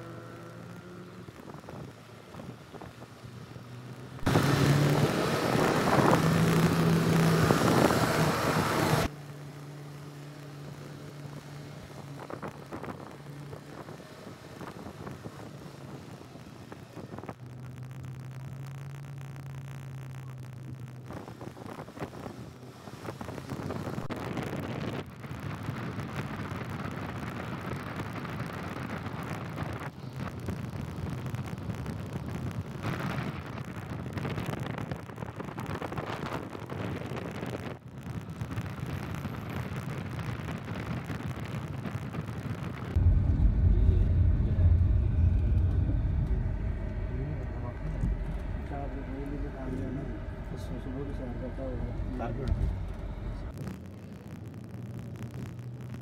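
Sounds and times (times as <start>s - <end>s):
road rumble: 0.0s - 56.0s
wind on microphone: 21.1s - 53.6s
steady low hum: 42.9s - 53.5s.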